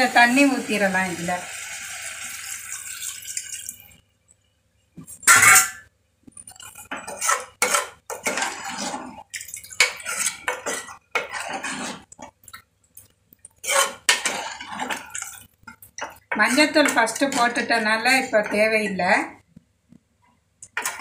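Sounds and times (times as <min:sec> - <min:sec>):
metal ladle scraping a pot: 0:05.2 - 0:05.8, 0:06.6 - 0:12.2, 0:13.6 - 0:19.0.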